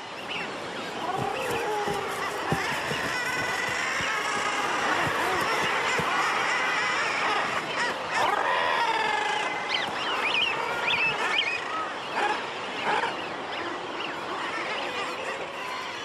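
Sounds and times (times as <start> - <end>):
seabird colony calling: 0.0 - 16.0
higher thin bird calls: 0.9 - 11.8.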